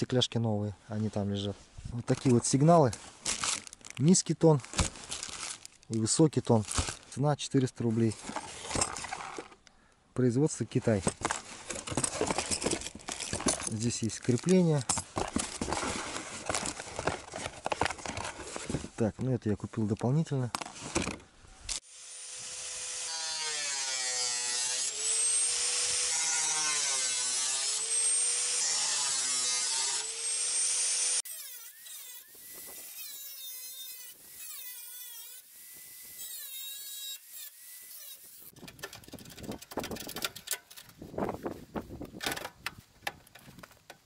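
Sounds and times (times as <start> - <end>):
angle grinder cutting steel: 21.8 - 39.3
clicks and knocks of handling parts: 38.6 - 41.0, 42.0 - 44.0.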